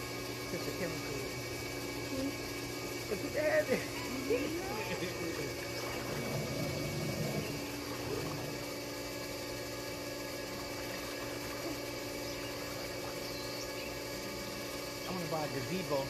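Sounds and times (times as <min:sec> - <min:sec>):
pool filter pump humming: 0:00.0 - 0:16.0
water splashing: 0:05.4 - 0:08.8.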